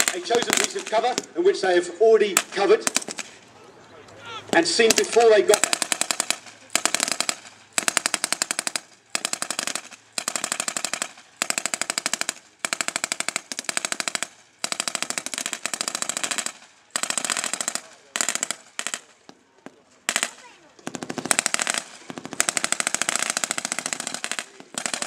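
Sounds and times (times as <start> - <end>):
machine gun bursts: 0.0 - 1.2, 4.5 - 19.2, 20.1 - 25.0
single gunshots: 0.0 - 1.3, 4.5 - 11.8.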